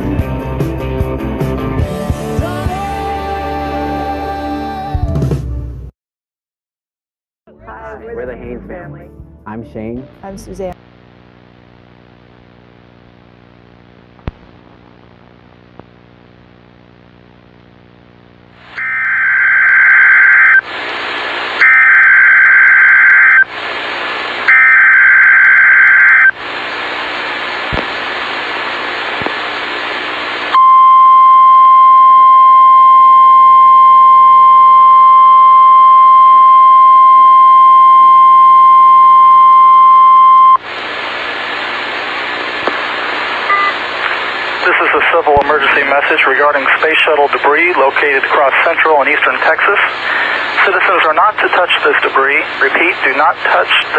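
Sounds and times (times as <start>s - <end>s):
faint hum: 10.0s - 53.9s
static hiss: 10.8s - 30.6s, 40.6s - 53.9s
screeching data tones: 18.8s - 20.6s, 21.6s - 23.5s, 24.5s - 26.3s.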